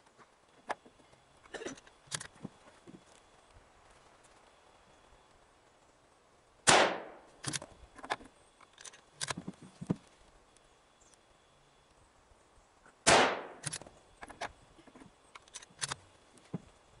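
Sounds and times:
rifle shot with echo: 0:06.6 - 0:07.2, 0:13.0 - 0:13.7
rifle bolt metallic clicks: 0:07.4 - 0:09.4, 0:13.5 - 0:14.5.

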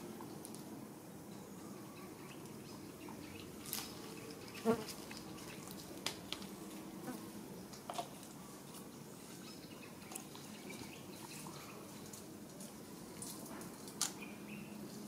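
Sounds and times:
leaves rustling and clicking: 0:03.4 - 0:07.0, 0:07.7 - 0:15.0.

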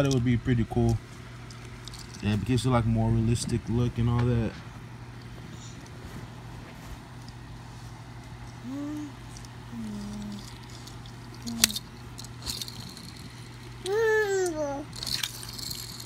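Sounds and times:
low room hum: 0:00.0 - 0:16.0
toy car click: 0:09.3 - 0:13.2, 0:13.8 - 0:16.0.

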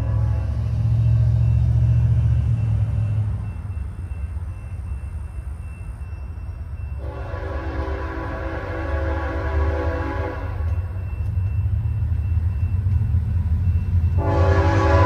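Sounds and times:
locomotive air horn: 0:00.0 - 0:00.9, 0:07.0 - 0:10.7, 0:14.2 - 0:15.0
deep train rumble: 0:00.0 - 0:15.0.

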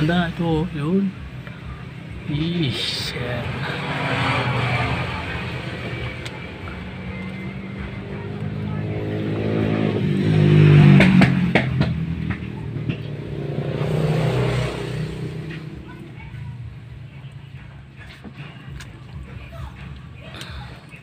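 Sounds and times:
motor vehicle engine running: 0:00.0 - 0:21.0.

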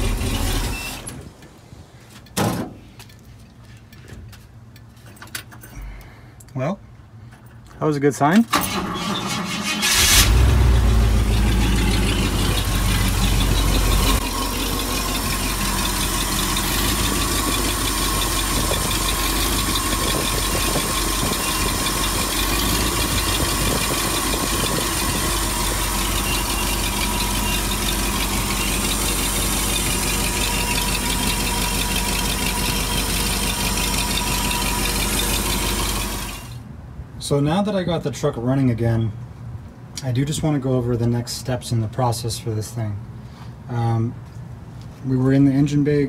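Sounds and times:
engine starting and idling: 0:00.0 - 0:01.2, 0:08.5 - 0:36.6.

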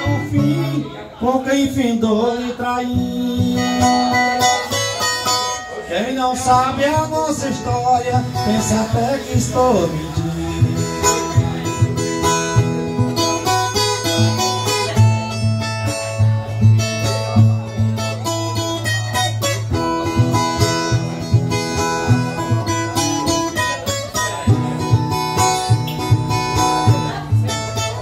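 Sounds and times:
plucked steel strings melody: 0:06.8 - 0:28.0.

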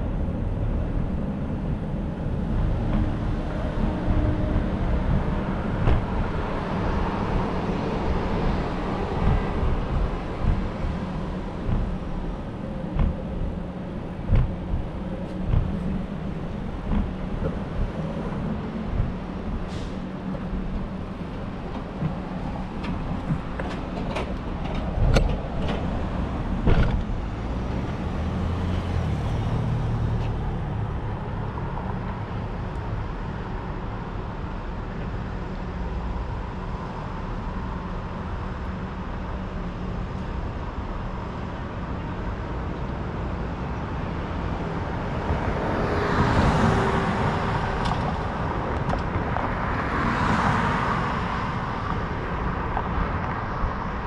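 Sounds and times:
cars passing: 0:00.0 - 0:54.0
road noise: 0:00.0 - 0:54.0
sharp knocks: 0:09.1 - 0:19.7.

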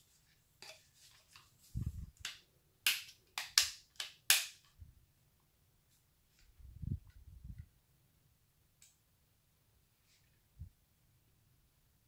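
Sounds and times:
sharp plastic clicks: 0:02.2 - 0:04.7.

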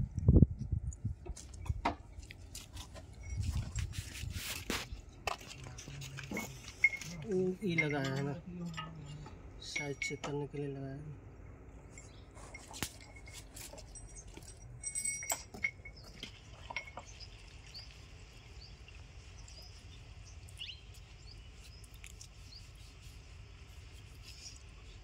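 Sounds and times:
low background rumble: 0:00.0 - 0:25.0
light metallic clinks: 0:05.8 - 0:10.4, 0:11.9 - 0:17.5
high bird chirps: 0:18.6 - 0:22.9.

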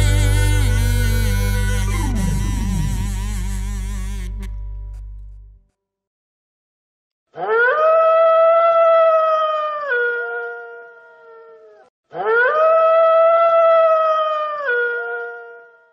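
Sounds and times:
wolf howling: 0:07.4 - 0:15.8.

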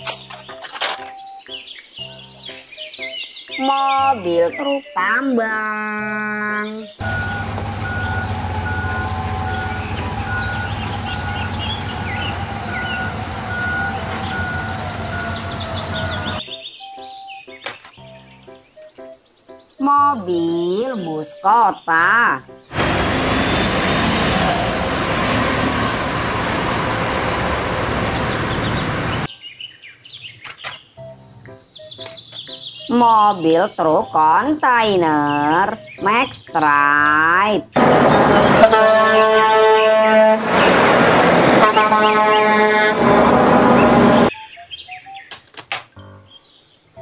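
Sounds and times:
birds chirping: 0:00.0 - 0:40.9, 0:43.6 - 0:45.4
bus driving past: 0:07.0 - 0:16.4, 0:22.7 - 0:29.3, 0:37.8 - 0:44.3
diesel truck engine humming: 0:07.0 - 0:16.4, 0:22.7 - 0:29.3, 0:37.6 - 0:44.3
back-up alarm beeping: 0:07.0 - 0:17.2.

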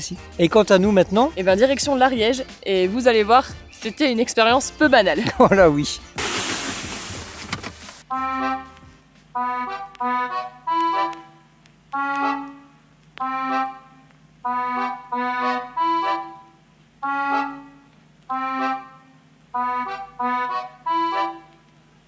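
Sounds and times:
short chord phrases: 0:08.1 - 0:21.6.

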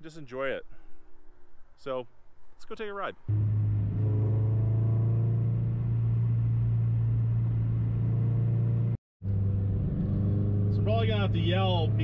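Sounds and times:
car engine droning: 0:03.3 - 0:12.0.

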